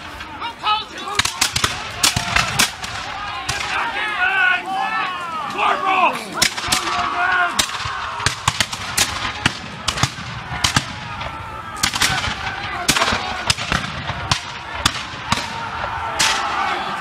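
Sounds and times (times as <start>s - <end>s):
people shouting: 0.0s - 17.0s
muskets firing: 1.1s - 3.9s, 6.4s - 17.0s.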